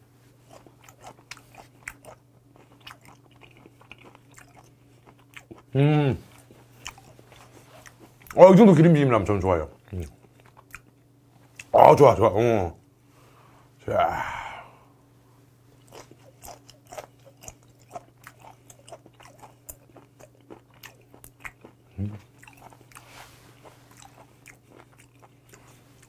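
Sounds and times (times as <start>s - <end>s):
person humming: 5.8s - 6.2s, 13.8s - 14.8s, 21.9s - 22.3s.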